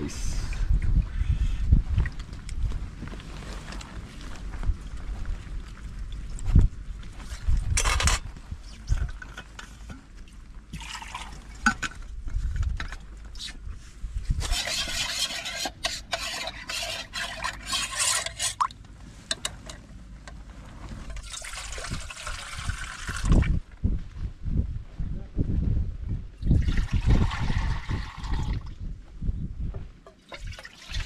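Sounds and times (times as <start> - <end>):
water pouring into pot: 10.7 - 11.5, 14.5 - 18.7, 21.1 - 23.5, 26.4 - 28.7, 30.2 - 31.0.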